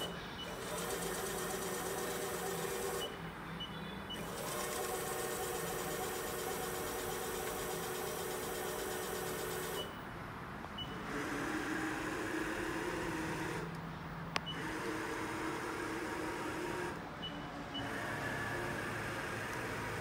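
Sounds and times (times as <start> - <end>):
mill axis drive whining: 0.0 - 10.0.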